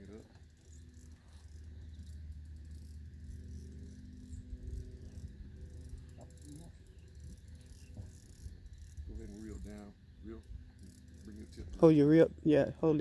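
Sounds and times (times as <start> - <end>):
fishing reel ticking: 0.0 - 12.0
low steady hum: 0.0 - 13.0.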